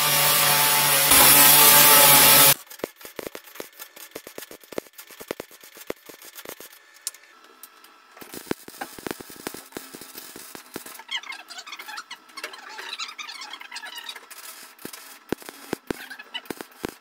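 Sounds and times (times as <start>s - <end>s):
welder spatter crackle: 0.0s - 7.2s, 8.2s - 11.4s, 14.0s - 17.0s.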